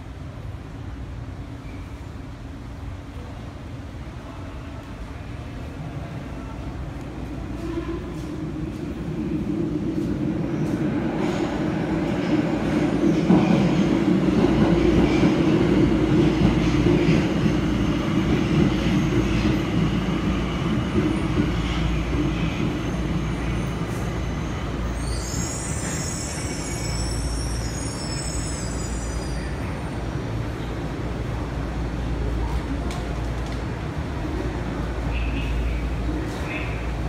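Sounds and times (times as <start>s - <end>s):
subway train rumble: 0.0s - 37.0s
metallic wheel squeal: 25.0s - 29.6s.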